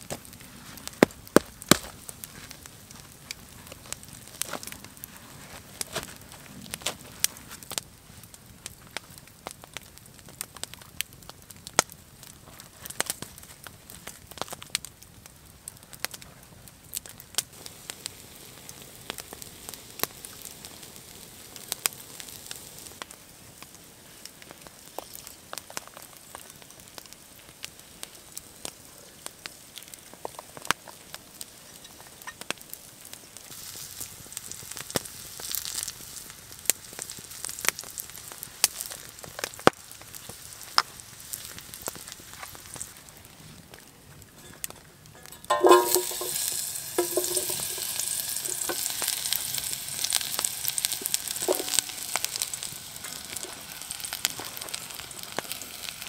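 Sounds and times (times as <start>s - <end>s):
campfire crackling and popping: 0.0s - 56.0s
food sizzling in a pan: 17.5s - 28.8s, 29.6s - 43.0s, 45.3s - 56.0s.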